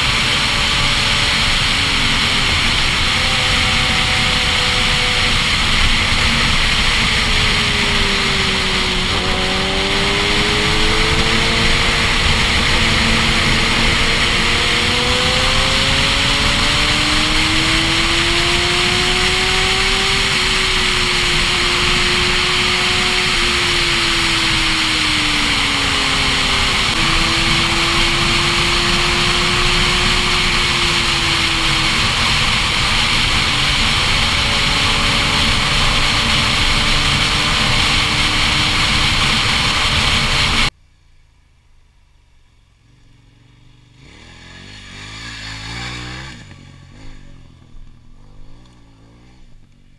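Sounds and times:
wind rush on microphone: 0.0s - 40.7s
motorcycle engine: 0.0s - 49.9s.

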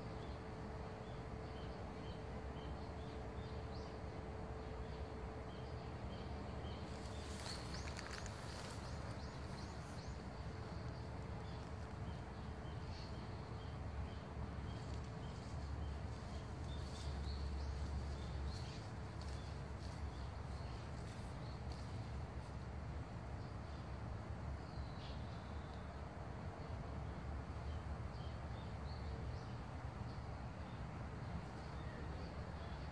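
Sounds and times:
rustling crackles: 6.9s - 13.3s, 14.6s - 22.6s.

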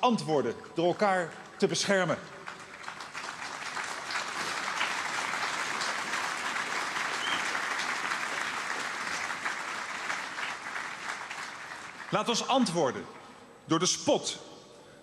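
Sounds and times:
large crowd applauding: 1.8s - 12.9s.

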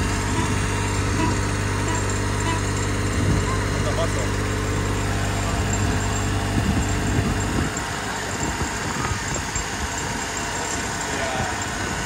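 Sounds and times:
tractor engine running: 0.0s - 12.0s
wind and wheel noise: 0.0s - 12.0s
wind buffeting microphone: 3.0s - 3.6s, 5.1s - 12.0s.

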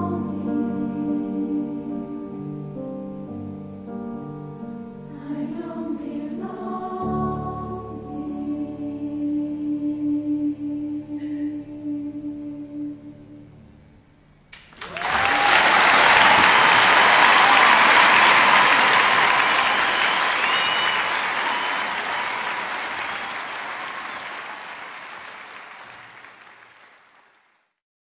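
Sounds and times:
crowd applause: 14.6s - 27.7s.

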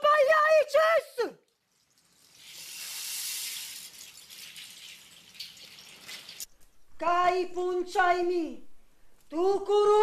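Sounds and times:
rushing hiss: 2.6s - 3.8s.

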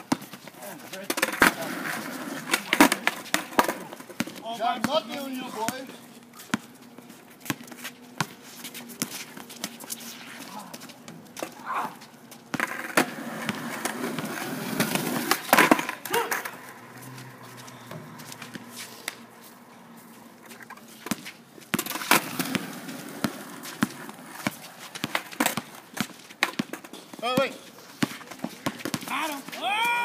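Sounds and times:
sneakers scuffing on asphalt: 16.9s - 21.7s
players calling out: 29.0s - 30.0s.

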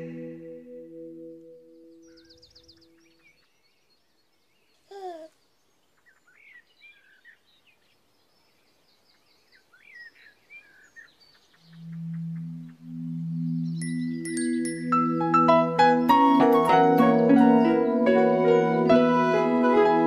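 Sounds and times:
faint birdsong: 0.0s - 15.4s
baby cooing: 4.9s - 5.4s.

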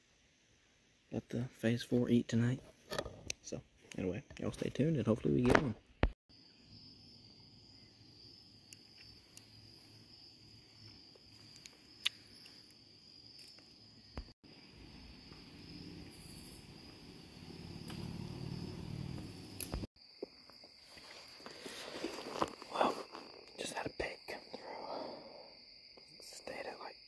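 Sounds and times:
high-pitched insect chorus: 6.3s - 27.0s.

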